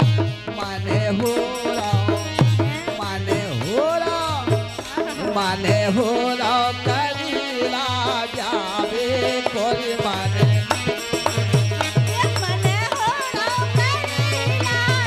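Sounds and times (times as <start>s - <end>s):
person singing ornamented melody: 0.0s - 10.7s.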